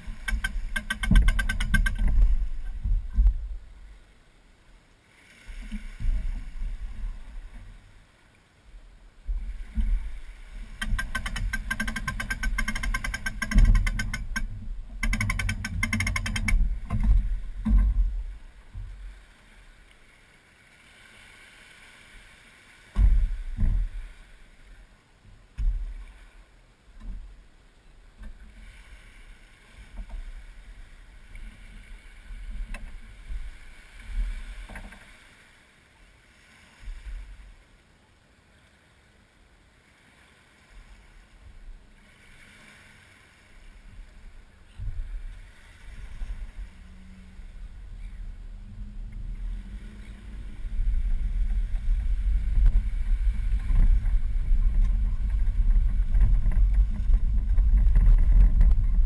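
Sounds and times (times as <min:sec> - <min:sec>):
wind on microphone: 0:00.0 - 0:04.0, 0:09.2 - 0:19.2, 0:23.0 - 0:24.5, 0:43.6 - 0:59.0
knocks on boat: 0:00.1 - 0:03.5, 0:10.8 - 0:19.0, 0:22.9 - 0:24.0, 0:25.6 - 0:26.0
trailer rumbling over sand: 0:44.7 - 0:59.0.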